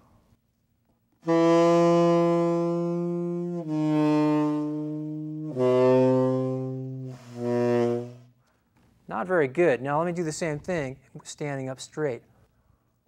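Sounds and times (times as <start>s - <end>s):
tenor saxophone long notes: 1.2s - 8.4s.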